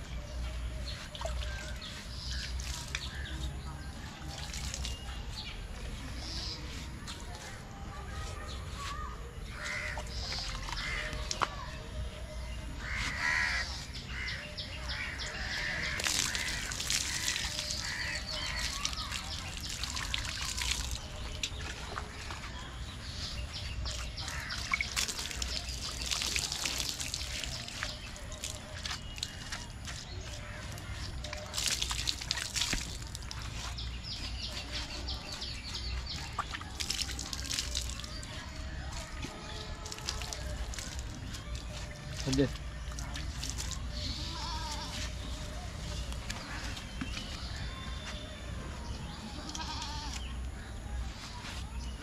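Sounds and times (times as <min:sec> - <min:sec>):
water splashing: 0:00.9 - 0:05.4, 0:15.3 - 0:47.4
crows cawing: 0:12.8 - 0:14.4.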